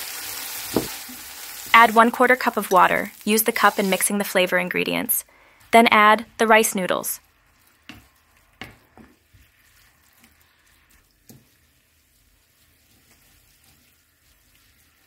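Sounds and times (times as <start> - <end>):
faint sizzling: 0.0 - 5.8.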